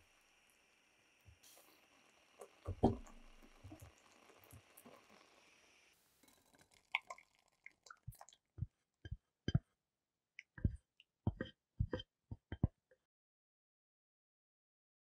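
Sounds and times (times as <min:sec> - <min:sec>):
faint hiss of bubbling pot: 0:00.0 - 0:08.4
compote plopping into a sieve: 0:02.4 - 0:04.9, 0:06.3 - 0:08.8.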